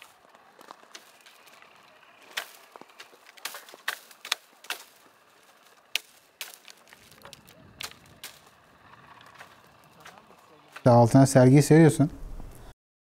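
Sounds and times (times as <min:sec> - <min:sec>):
olive branches clicking and snapping: 0:00.0 - 0:11.1
low rumble: 0:06.9 - 0:12.7.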